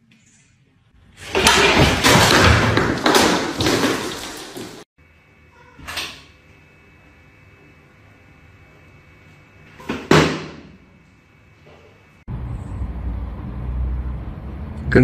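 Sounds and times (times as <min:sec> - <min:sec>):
crash and clatter: 0:01.2 - 0:04.8.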